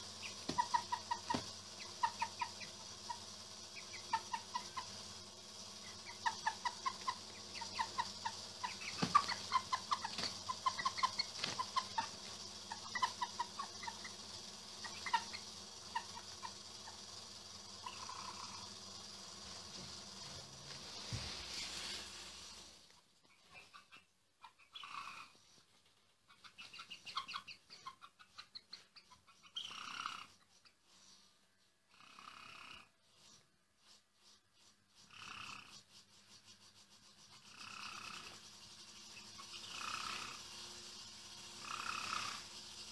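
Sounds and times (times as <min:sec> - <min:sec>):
hens clucking softly: 0:00.0 - 0:05.1, 0:05.8 - 0:14.2.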